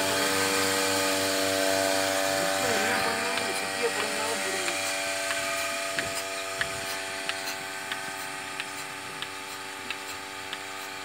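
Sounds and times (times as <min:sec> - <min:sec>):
vacuum pump humming: 0:00.0 - 0:11.0
pulsator clicking: 0:02.5 - 0:11.0.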